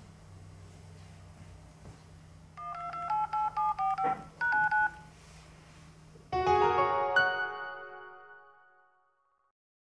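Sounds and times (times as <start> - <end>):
phone keypad dialing tones: 2.6 - 5.1
bright music chord: 6.3 - 9.4.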